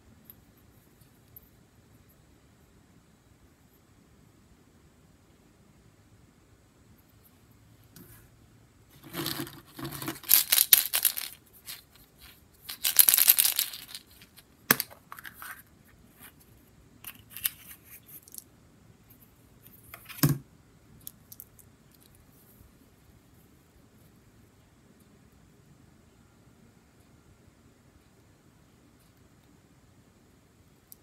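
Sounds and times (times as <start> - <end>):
plastic eggs clattering in bucket: 9.0 - 11.9, 12.7 - 15.4.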